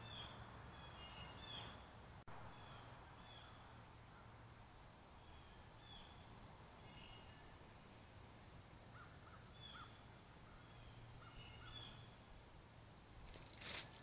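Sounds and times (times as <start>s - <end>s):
faint bird calls: 0.0s - 1.9s, 5.2s - 7.6s, 8.9s - 12.3s.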